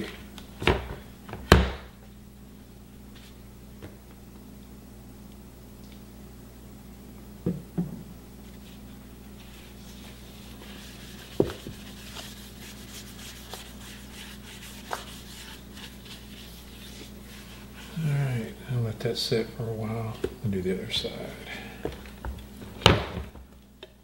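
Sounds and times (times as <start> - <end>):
low steady hum: 0.0 - 24.0
paper towel scrubbing wood: 8.6 - 18.5.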